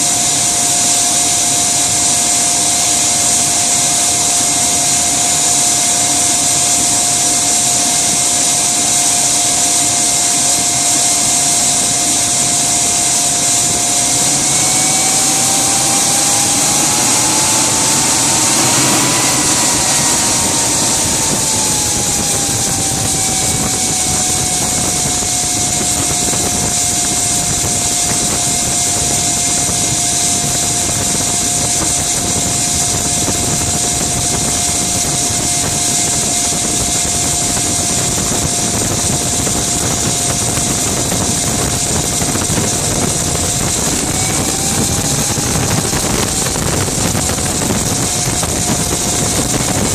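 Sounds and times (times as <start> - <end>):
loud hiss: 0.0 - 38.4
gas turbine engine whining: 0.0 - 49.9.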